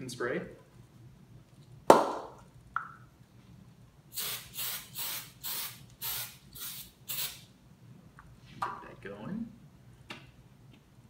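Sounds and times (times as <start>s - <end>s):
aerosol spray hissing: 4.1s - 7.4s.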